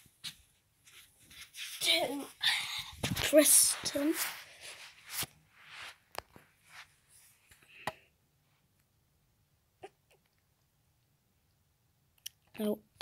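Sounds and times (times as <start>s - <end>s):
soft rustles: 0.0s - 7.6s.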